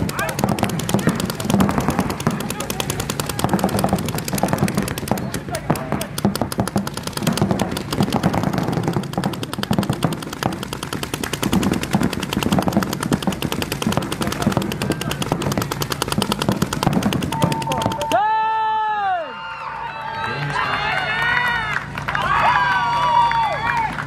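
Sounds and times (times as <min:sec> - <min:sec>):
paintball markers firing rapidly: 0:00.0 - 0:18.4.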